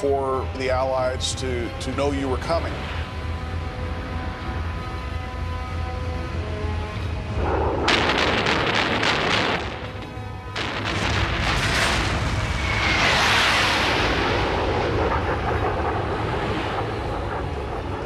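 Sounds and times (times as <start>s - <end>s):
dramatic background music: 0.0s - 18.0s
jet roar flyby: 0.0s - 18.0s
low rumble: 0.0s - 18.0s.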